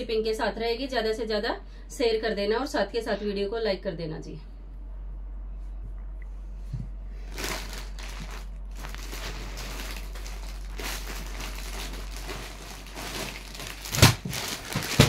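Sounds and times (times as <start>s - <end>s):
low steady hum: 0.0s - 15.0s
plastic packaging crinkling: 7.2s - 15.0s.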